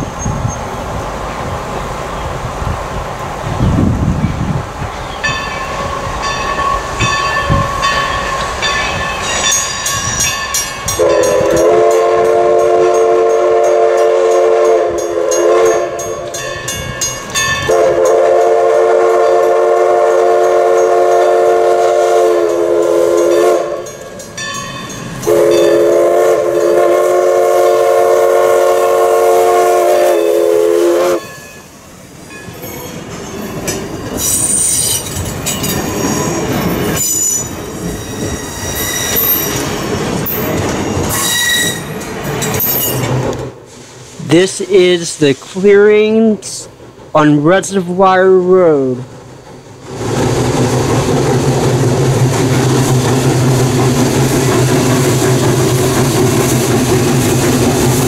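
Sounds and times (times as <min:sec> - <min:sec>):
train wheels clattering and squealing: 0:00.0 - 0:01.4, 0:04.2 - 0:13.8, 0:22.5 - 0:25.8, 0:31.2 - 0:44.1, 0:49.3 - 0:58.0
steam whistle chime blasts: 0:10.9 - 0:16.4, 0:17.6 - 0:24.1, 0:25.2 - 0:31.7, 0:36.0 - 0:39.6, 0:41.1 - 0:42.0.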